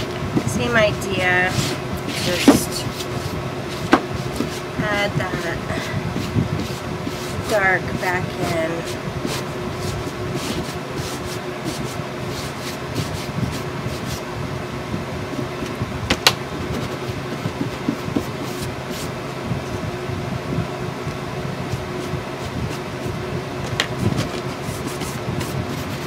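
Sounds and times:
steady low hum: 0.0s - 26.0s
ink pad tapping and scuffing on box: 1.5s - 5.6s, 15.4s - 19.1s.

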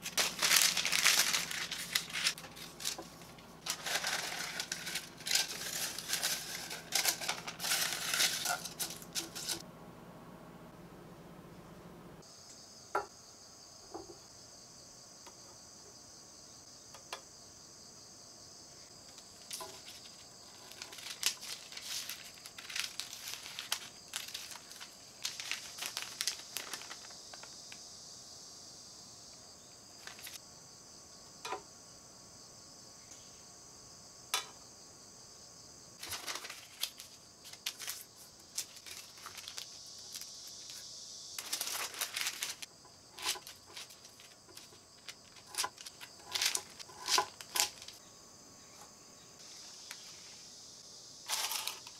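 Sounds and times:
baking paper crinkling: 0.0s - 9.6s, 19.2s - 27.8s, 30.0s - 30.4s, 36.0s - 48.0s, 51.3s - 51.9s
insects chirring: 0.0s - 9.6s, 12.2s - 51.9s.

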